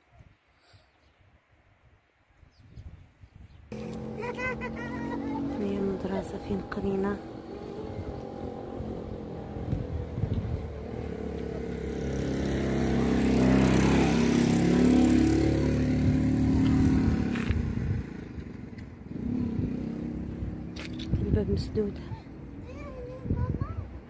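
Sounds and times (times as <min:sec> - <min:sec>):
vehicle engine passing by: 0:03.7 - 0:22.7.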